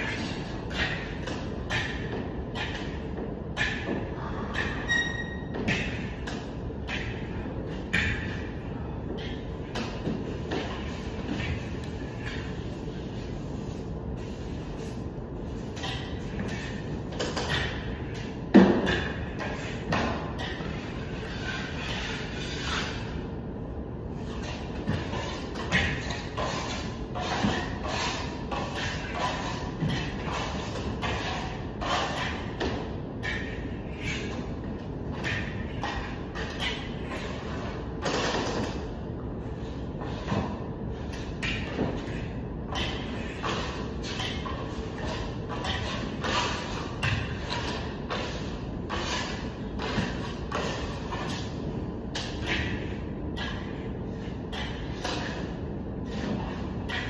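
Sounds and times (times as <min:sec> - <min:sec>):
hand tools scraping plaster: 0:18.8 - 0:23.2, 0:24.2 - 0:34.5, 0:39.6 - 0:51.7.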